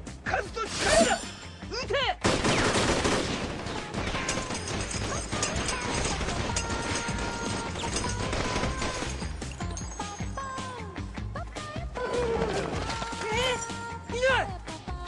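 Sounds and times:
pistol gunfire: 2.2 - 9.4.

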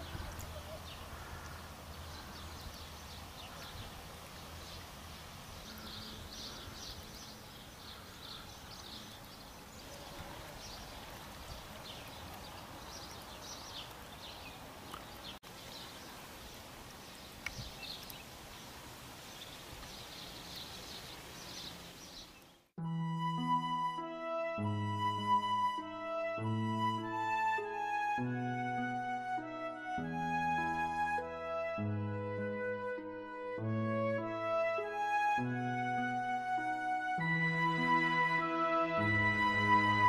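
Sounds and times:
birds chirping: 0.0 - 22.7.

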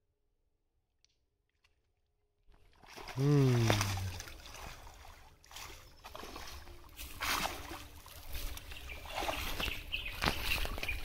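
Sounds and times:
water splashing and sloshing: 2.5 - 11.0
fish thrashing in a net: 2.7 - 11.0.

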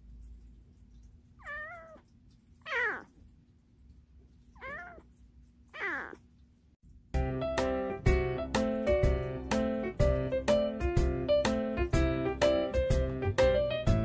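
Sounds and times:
kitten meowing: 1.4 - 2.0, 2.6 - 3.1, 4.6 - 5.1, 5.8 - 6.2.

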